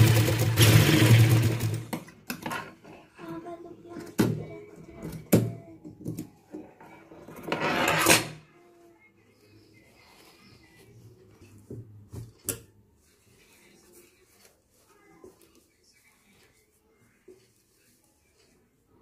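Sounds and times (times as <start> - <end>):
sewing machine stitching: 0.0 - 2.0
cloth rustling: 9.7 - 19.0.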